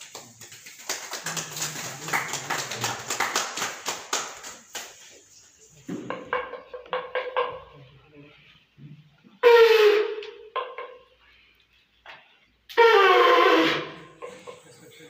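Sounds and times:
conch shell blasts: 0:09.4 - 0:10.5, 0:12.7 - 0:14.3.

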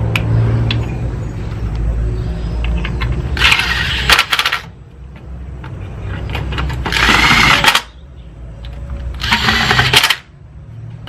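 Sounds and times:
power drill driving screws: 0:03.4 - 0:04.7, 0:06.8 - 0:07.9, 0:09.2 - 0:10.2.

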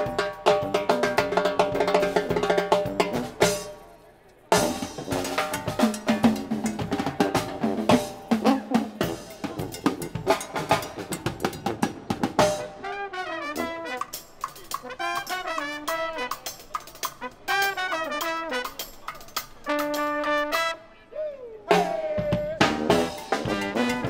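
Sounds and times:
drum set and timbales groove: 0:00.0 - 0:20.8, 0:21.7 - 0:24.0
brass horns: 0:04.6 - 0:09.6, 0:12.3 - 0:21.1, 0:21.7 - 0:24.0.

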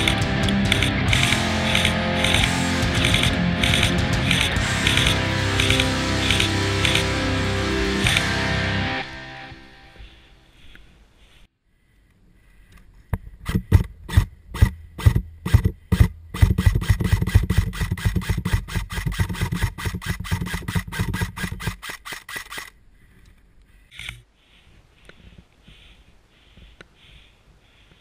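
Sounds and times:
airsoft rifle firing: 0:00.0 - 0:07.1
gun mechanism humming: 0:00.0 - 0:07.1, 0:13.4 - 0:24.2.

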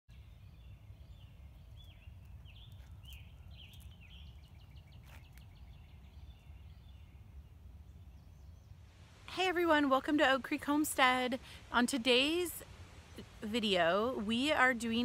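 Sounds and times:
small birds chirping: 0:00.1 - 0:08.8
low steady rumble: 0:00.2 - 0:15.0.

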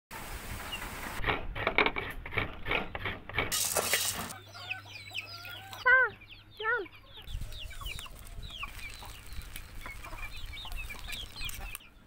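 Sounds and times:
chickens clucking: 0:02.0 - 0:12.0
chicks peeping: 0:04.2 - 0:12.0.

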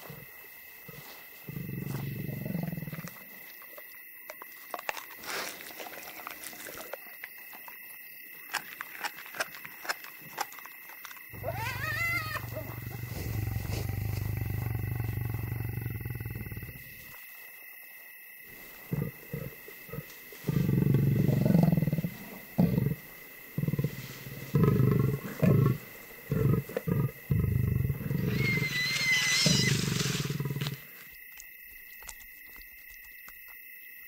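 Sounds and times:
deep animal growls: 0:00.9 - 0:03.2, 0:11.4 - 0:17.0, 0:18.6 - 0:28.6
high wavering animal cry: 0:11.4 - 0:13.8, 0:28.0 - 0:30.4.

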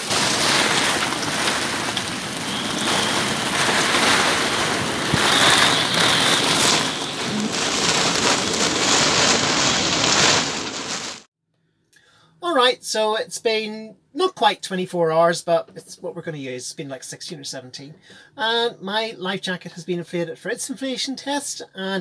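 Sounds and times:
heavy rain on boat deck: 0:00.0 - 0:11.3.

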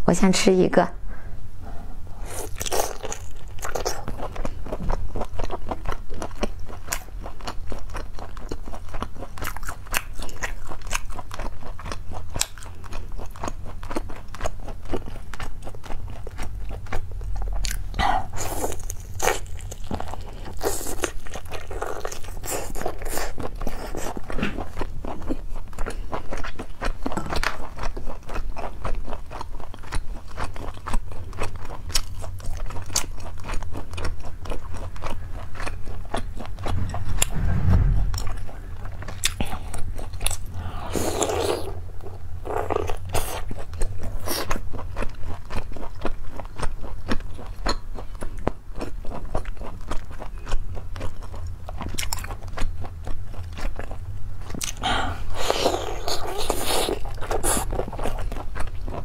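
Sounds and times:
steady low hum: 0:00.0 - 0:05.6, 0:34.5 - 0:42.6
biting and chewing: 0:02.2 - 0:37.0, 0:38.9 - 0:59.0.

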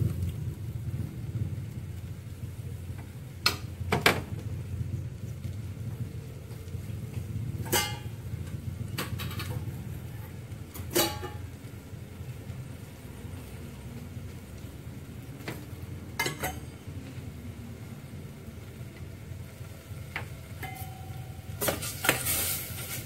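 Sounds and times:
gas stove rumble: 0:00.0 - 0:23.0
paste frying in oil: 0:00.0 - 0:23.0
utensils clinking against pot: 0:07.6 - 0:08.2, 0:10.8 - 0:11.5, 0:16.2 - 0:16.8, 0:20.6 - 0:23.0.

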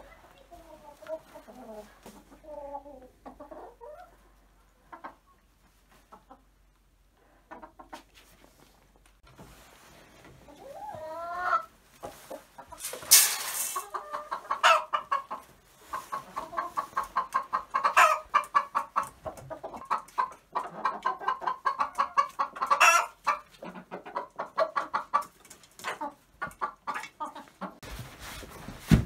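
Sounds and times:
chickens clucking: 0:00.0 - 0:27.8
chicken squawks: 0:13.8 - 0:19.0.

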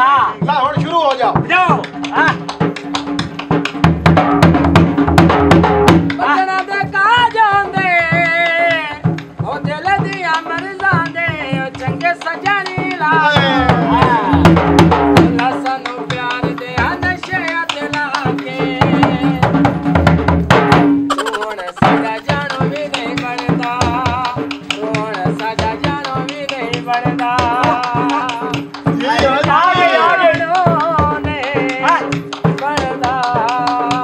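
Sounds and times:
fast hand drum strokes: 0:00.0 - 0:34.0
person singing ornamented melody: 0:21.1 - 0:24.4.

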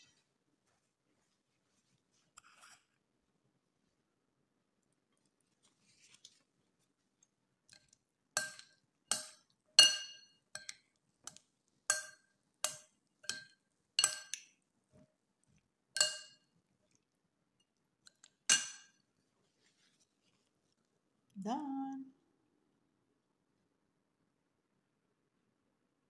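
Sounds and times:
cutlery clinking on ceramic bowl: 0:07.7 - 0:14.6, 0:16.0 - 0:16.5, 0:18.1 - 0:19.0.

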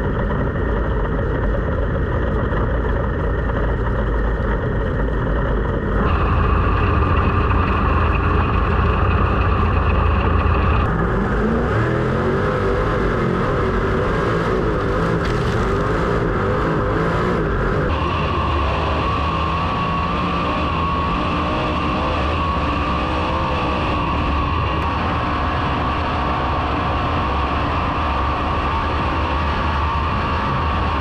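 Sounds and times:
sprint car engines racing: 0:05.8 - 0:31.0.

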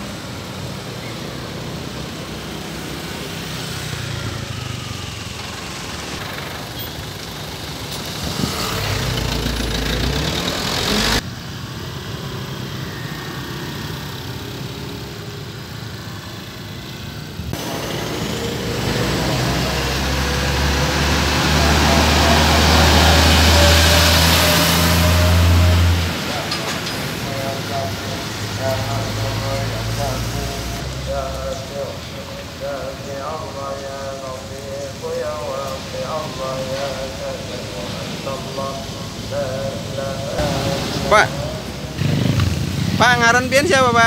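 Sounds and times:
road traffic: 0:00.0 - 0:44.0
truck diesel engine running: 0:03.8 - 0:11.2.

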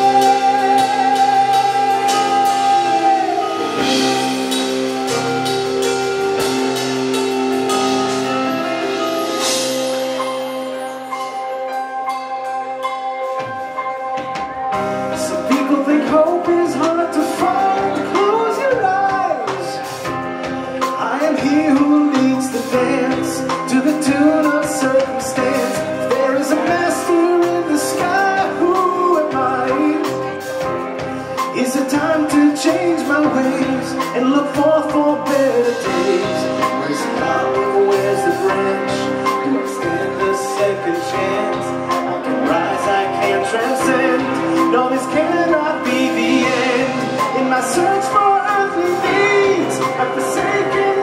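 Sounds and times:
man singing: 0:00.0 - 0:06.5, 0:14.7 - 0:51.0
live rock band: 0:00.0 - 0:51.0.

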